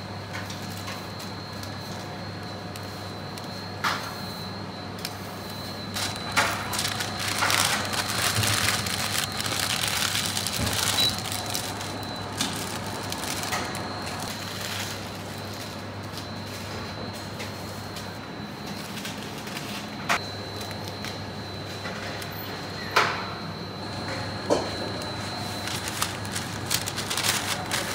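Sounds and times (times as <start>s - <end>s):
steady background hum: 0.0s - 27.9s
paper wrapper crinkling: 5.9s - 15.6s, 25.4s - 27.9s.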